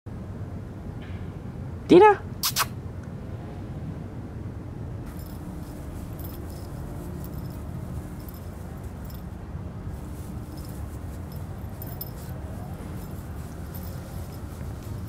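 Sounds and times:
dog collar tags jingling: 0:05.1 - 0:15.0.

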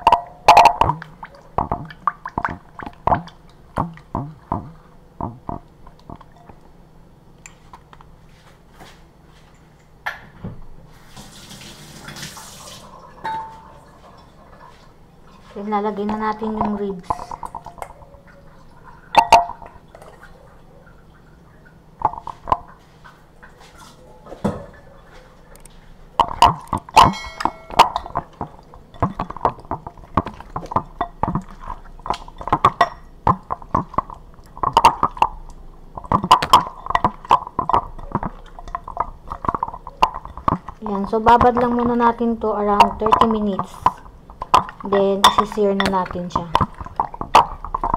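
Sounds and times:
ribs squelching in marinade: 0:24.8 - 0:47.9
knocks against glass bowl: 0:26.2 - 0:28.2
ringing glass clink: 0:27.0 - 0:28.1.

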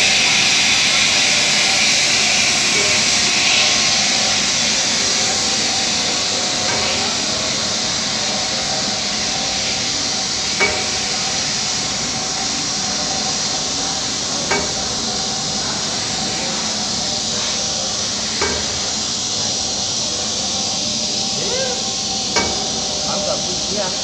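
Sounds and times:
production line mechanical noise: 0:00.0 - 0:24.0.

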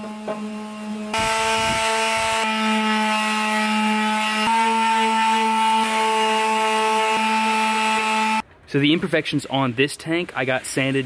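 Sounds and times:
electric palm sander: 0:00.0 - 0:08.4.

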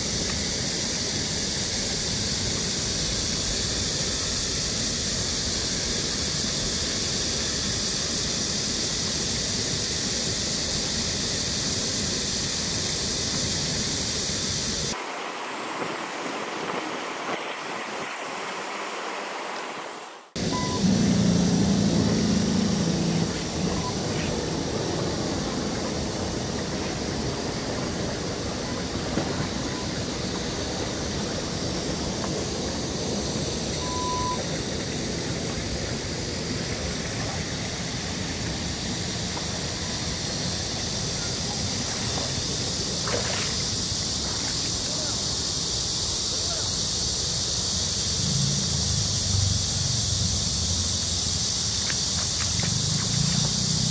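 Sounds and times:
stream water rushing: 0:10.7 - 0:46.1
loud low hum: 0:20.4 - 0:39.1.

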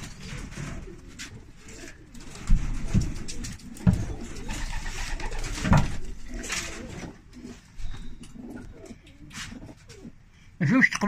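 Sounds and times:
knocks and rustling on wooden perch: 0:00.0 - 0:07.2
pigeons cooing: 0:00.0 - 0:10.6.

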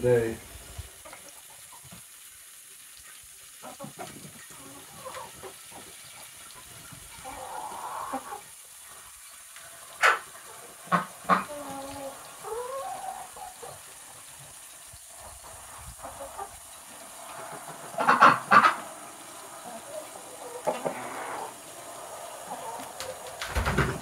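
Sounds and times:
hens clucking and squawking: 0:00.9 - 0:02.2, 0:03.0 - 0:24.0.

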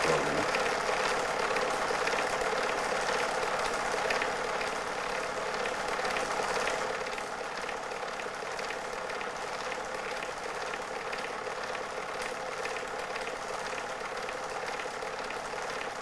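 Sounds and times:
film projector whirring and clattering: 0:00.0 - 0:16.0.

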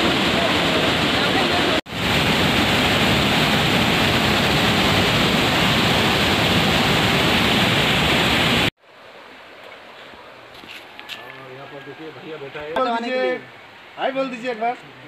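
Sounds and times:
water rushing over rocks: 0:00.0 - 0:10.3.

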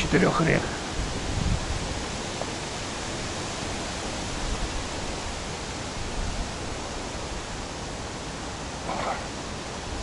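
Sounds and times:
bicycle riding through rain: 0:00.0 - 0:10.0.

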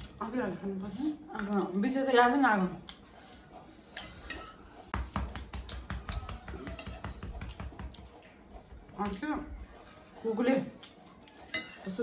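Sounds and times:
spoons scraping glass plates: 0:04.0 - 0:04.7.

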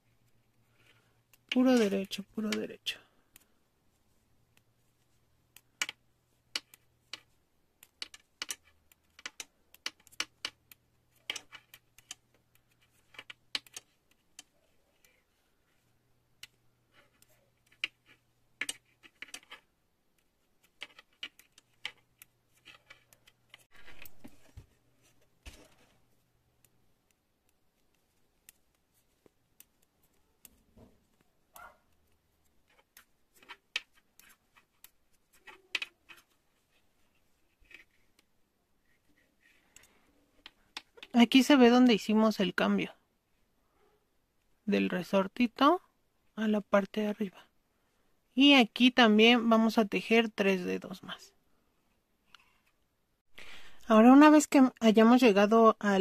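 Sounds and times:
knitting needles clicking: 0:00.2 - 0:03.6, 0:04.4 - 0:15.3, 0:16.0 - 0:24.7, 0:25.4 - 0:36.4, 0:37.0 - 0:41.5.

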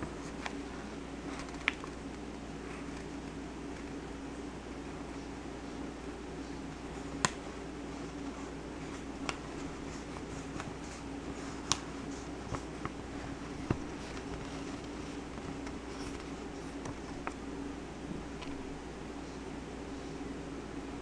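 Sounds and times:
paper crackling: 0:00.0 - 0:04.0, 0:06.9 - 0:17.5
steady low hum: 0:00.0 - 0:21.0.

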